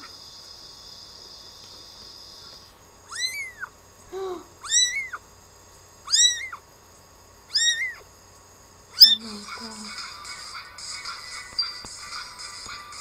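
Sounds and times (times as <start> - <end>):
kitten mewing: 3.0 - 5.2, 6.1 - 6.6, 7.5 - 8.0, 9.0 - 9.4.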